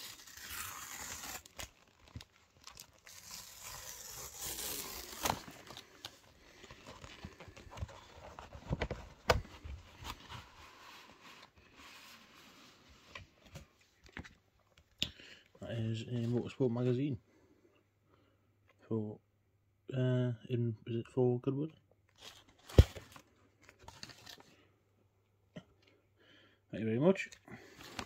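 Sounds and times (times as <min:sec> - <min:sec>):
cardboard tear strip ripping: 0:00.0 - 0:06.2
cardboard and paper rustling: 0:00.0 - 0:14.4, 0:22.2 - 0:24.5, 0:27.6 - 0:28.0.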